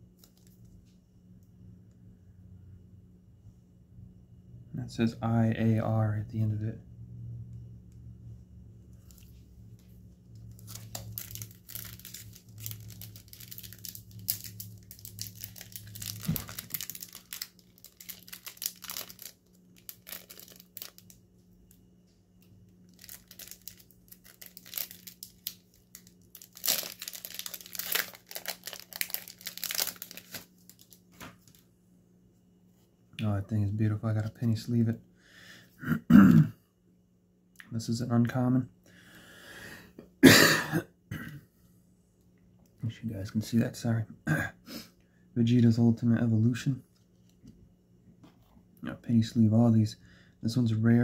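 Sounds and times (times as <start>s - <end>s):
plastic card sleeves rustling: 10.4s - 21.2s, 22.9s - 31.6s.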